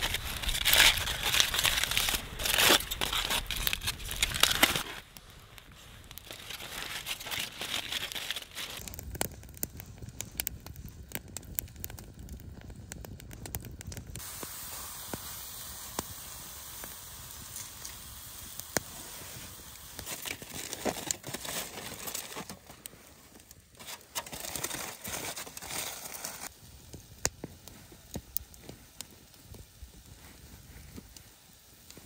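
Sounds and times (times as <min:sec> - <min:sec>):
aluminium foil crinkling: 0:00.0 - 0:09.1, 0:17.4 - 0:26.5
wood fire crackling: 0:00.0 - 0:32.0
steak sizzling in a frying pan: 0:14.2 - 0:20.7.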